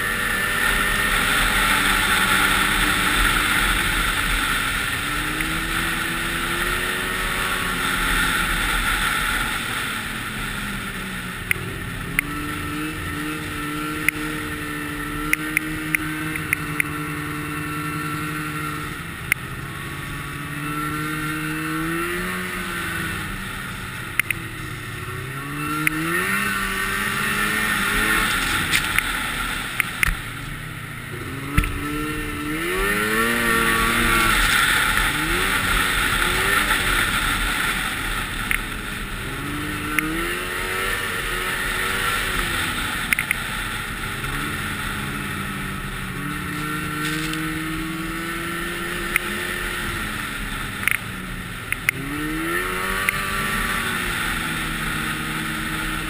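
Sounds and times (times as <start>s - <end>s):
snowmobile engine revving: 0.0s - 56.0s
steady rushing noise: 0.0s - 56.0s.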